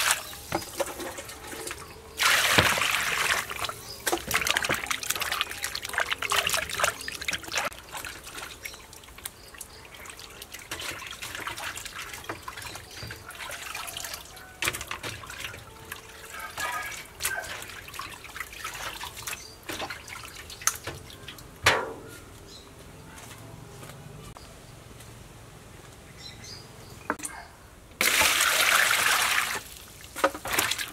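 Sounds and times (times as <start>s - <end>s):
water splash: 0.0s - 8.8s, 28.0s - 30.9s
water sloshing in steel basin: 0.0s - 22.1s, 28.0s - 30.9s.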